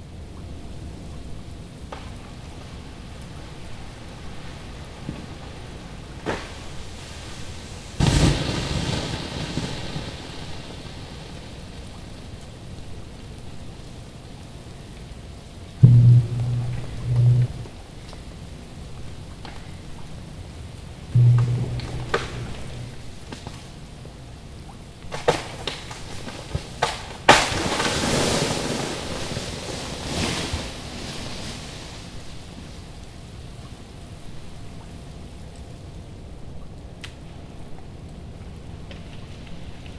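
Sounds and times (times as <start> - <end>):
background hiss: 0.0 - 39.9
tree branch breaking and crashing: 25.1 - 29.6.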